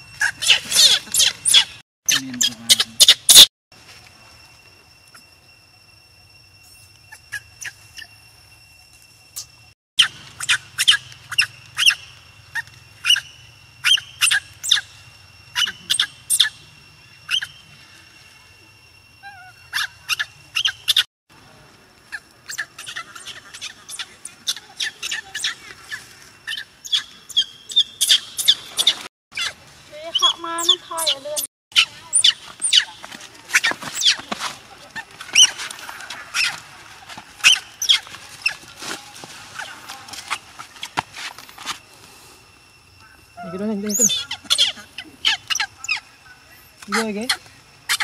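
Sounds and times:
baby monkey squealing: 0:00.2 - 0:03.5, 0:10.0 - 0:14.9, 0:15.5 - 0:16.6, 0:17.3 - 0:17.6, 0:19.2 - 0:21.0, 0:22.1 - 0:34.2, 0:35.3 - 0:35.7, 0:36.3 - 0:36.6, 0:37.4 - 0:38.6, 0:43.4 - 0:46.0.

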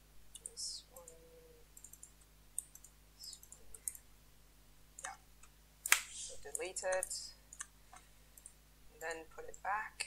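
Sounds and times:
faint mouse clicks: 0:00.3 - 0:01.2, 0:01.8 - 0:04.0.

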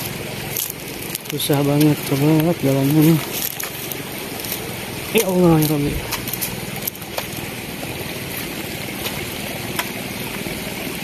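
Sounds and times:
twigs snapping underfoot: 0:00.0 - 0:07.5
rushing background noise: 0:00.0 - 0:11.0.

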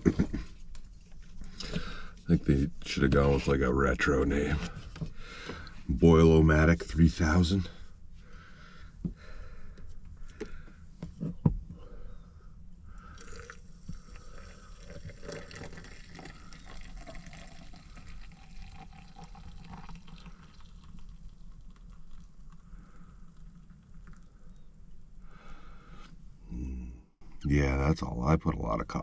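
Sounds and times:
water pouring into cup: 0:13.0 - 0:24.6.

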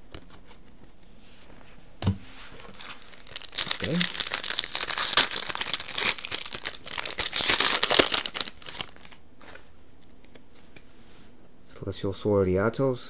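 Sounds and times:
foil wrapper crinkling: 0:02.6 - 0:09.6.

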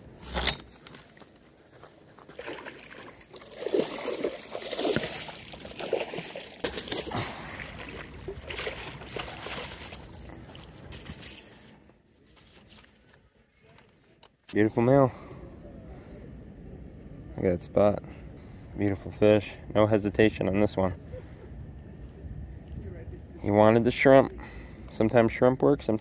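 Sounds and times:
fish splashing in water: 0:02.2 - 0:11.4.

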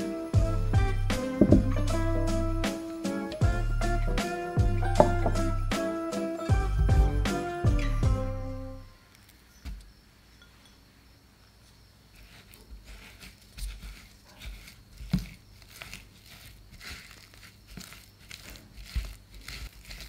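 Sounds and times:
strong knock: 0:01.4 - 0:01.8
whisk scraping in bowl: 0:12.2 - 0:20.0.

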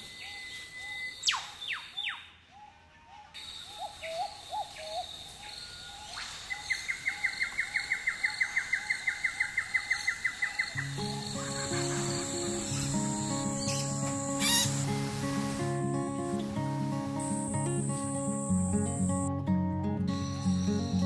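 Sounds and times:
birds calling: 0:03.4 - 0:19.3, 0:20.1 - 0:21.0
high insect drone: 0:03.4 - 0:19.3.

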